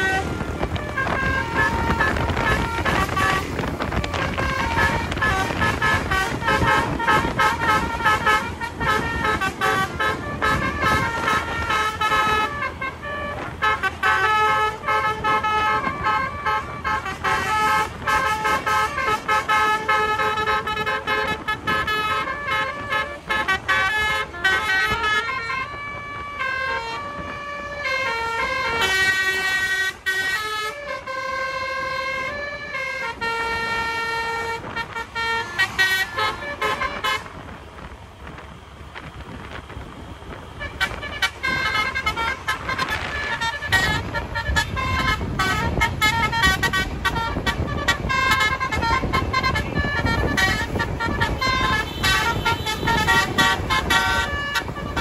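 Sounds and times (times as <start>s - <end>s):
musical air horn melody: 0.0s - 37.6s, 40.6s - 55.0s
road and engine noise: 0.0s - 55.0s.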